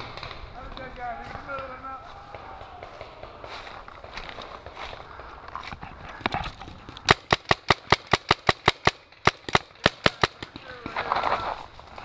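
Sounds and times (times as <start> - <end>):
paintball marker firing: 6.9 - 11.3.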